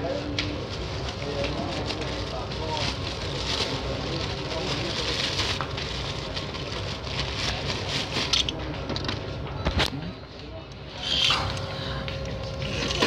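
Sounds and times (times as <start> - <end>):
plastic bag crinkling: 0.6 - 8.6.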